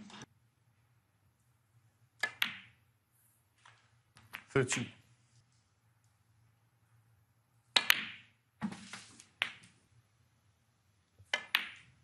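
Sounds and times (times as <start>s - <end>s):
snooker balls clicking: 2.1s - 2.9s, 3.6s - 5.0s, 7.7s - 8.4s, 9.2s - 9.8s, 11.1s - 12.0s.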